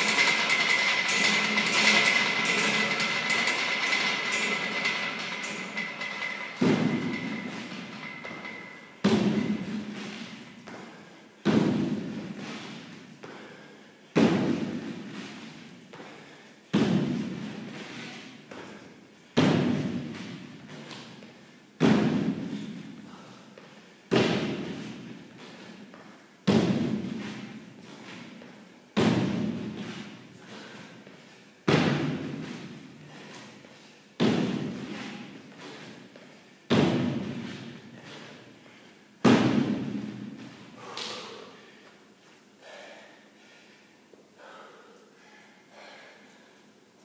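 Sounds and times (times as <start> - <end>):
feet landing on wooden box: 9.0 - 13.4, 34.2 - 35.1, 36.7 - 37.7, 39.2 - 40.5.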